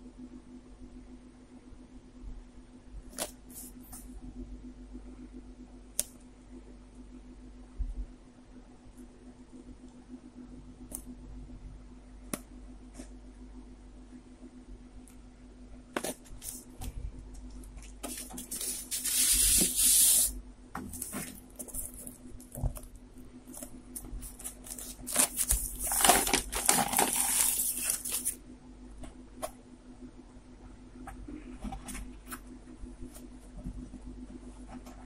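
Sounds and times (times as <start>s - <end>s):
paper and cardboard rustling: 17.9s - 28.4s.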